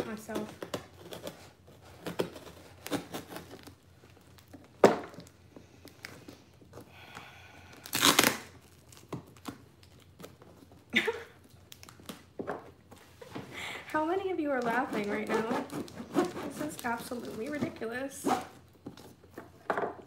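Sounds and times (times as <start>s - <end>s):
packing tape tearing: 0.0s - 6.4s, 7.6s - 12.3s, 14.6s - 19.2s
knife scraping cardboard box: 0.1s - 3.8s, 14.8s - 18.6s.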